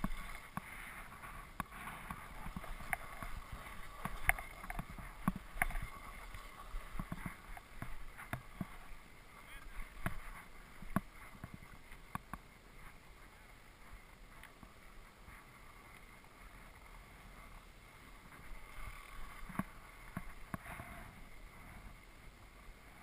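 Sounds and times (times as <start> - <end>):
skis scraping over snow: 0.0 - 23.0.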